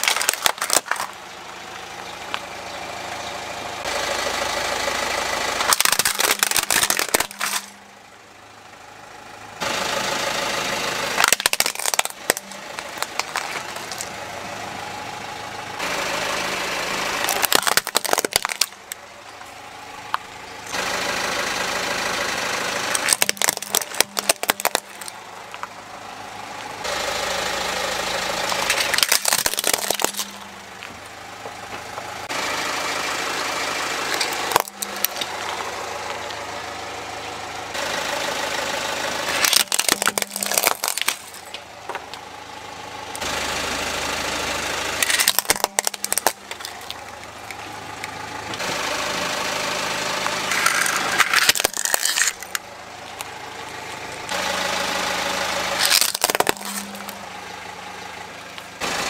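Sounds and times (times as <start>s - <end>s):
plastic cracking and snapping: 0.0s - 1.2s, 5.6s - 7.8s, 11.2s - 14.1s, 17.2s - 19.0s, 22.9s - 25.7s, 28.5s - 30.9s, 34.2s - 35.5s, 39.3s - 41.6s, 45.0s - 47.6s, 50.6s - 53.3s, 55.8s - 57.2s
car engine idling: 0.0s - 59.0s.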